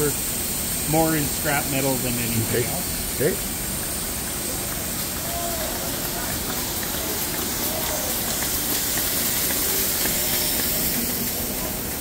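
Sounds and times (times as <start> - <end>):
factory hiss: 0.0 - 12.0.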